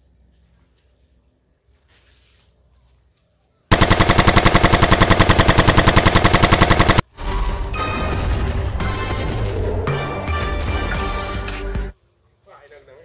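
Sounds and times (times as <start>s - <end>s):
toy automatic rifle gunfire: 3.7s - 7.0s.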